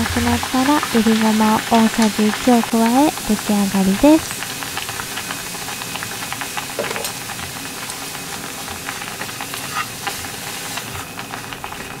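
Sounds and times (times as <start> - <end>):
glaze sizzling in a frying pan: 0.0 - 12.0
chopsticks stirring against pan: 6.8 - 12.0.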